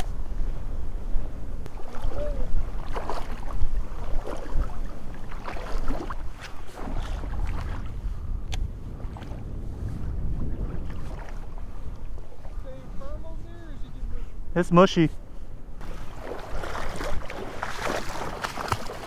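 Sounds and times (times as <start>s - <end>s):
wind rumble on microphone: 0.0s - 19.0s
water sloshing around wading legs: 1.7s - 8.0s, 10.8s - 12.8s, 15.8s - 19.0s.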